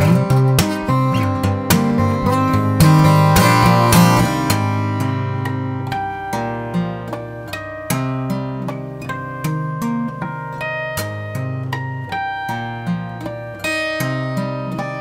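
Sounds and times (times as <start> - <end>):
fingerstyle acoustic guitar: 0.0 - 15.0.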